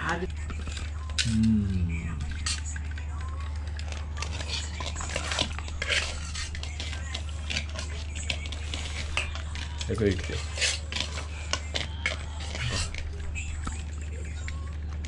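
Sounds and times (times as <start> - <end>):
steady low hum: 0.0 - 15.0
metal ladle scraping steel pot: 4.6 - 9.5, 10.2 - 13.0.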